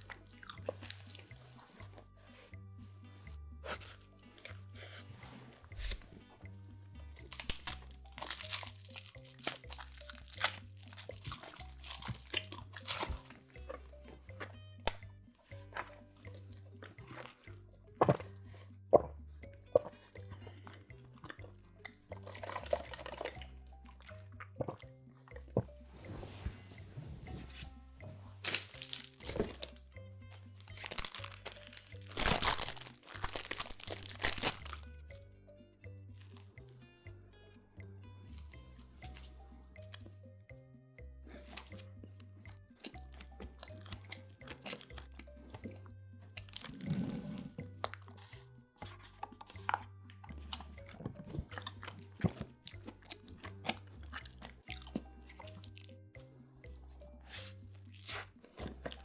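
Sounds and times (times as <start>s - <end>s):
background music: 0.0s - 59.0s
plastic wrappers crinkling: 7.3s - 13.3s, 28.4s - 29.8s, 30.6s - 34.8s
straw pulled from wrapper: 28.4s - 29.8s, 30.7s - 34.8s.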